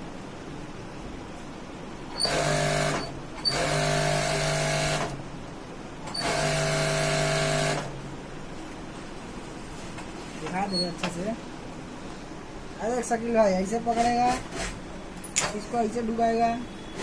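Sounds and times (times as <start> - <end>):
sewing machine stitching: 2.2 - 5.2, 6.1 - 7.9.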